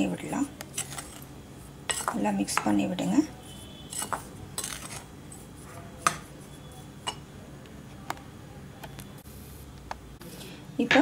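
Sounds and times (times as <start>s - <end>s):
spoon stirring dry mix in bowl: 0.2s - 7.2s
spoon clinking against bowl: 7.0s - 7.3s.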